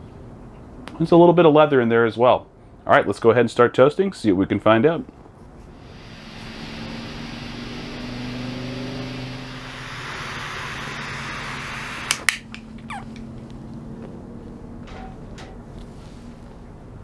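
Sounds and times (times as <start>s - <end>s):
torch lighter flame hissing: 5.7s - 12.4s.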